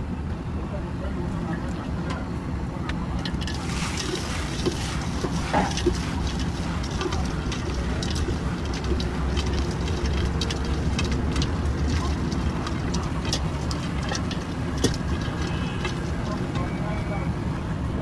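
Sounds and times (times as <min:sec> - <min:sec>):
street traffic rumble: 0:00.0 - 0:18.0
hand mixing in steel bowl: 0:03.2 - 0:16.8.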